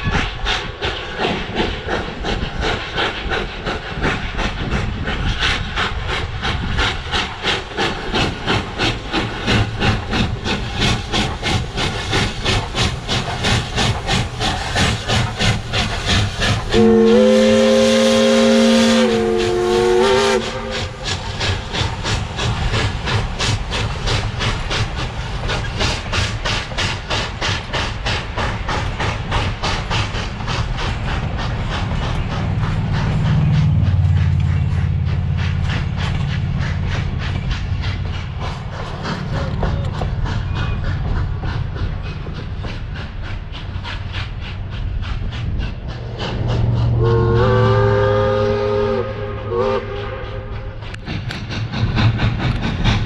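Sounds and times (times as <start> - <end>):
steam locomotive chuffing: 0.0 - 53.0
train wheels clattering: 0.0 - 53.0
steam whistle: 16.7 - 21.0, 47.0 - 50.8.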